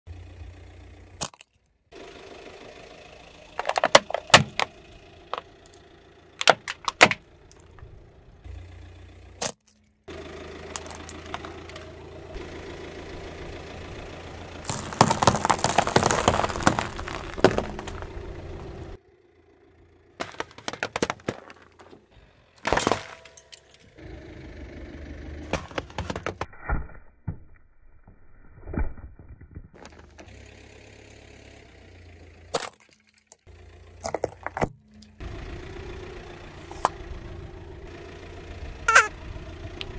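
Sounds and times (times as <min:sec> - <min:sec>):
low engine hum: 0:00.1 - 0:01.2, 0:01.8 - 0:26.4, 0:29.8 - 0:32.6, 0:33.4 - 0:39.9
tyre crushing items: 0:03.6 - 0:05.5, 0:06.4 - 0:07.2, 0:10.7 - 0:11.9, 0:14.6 - 0:18.9, 0:20.2 - 0:22.0, 0:22.6 - 0:23.7, 0:25.5 - 0:26.5, 0:34.0 - 0:35.0
sharp cracks and pops: 0:06.4 - 0:07.8, 0:14.6 - 0:18.2, 0:26.4 - 0:30.3.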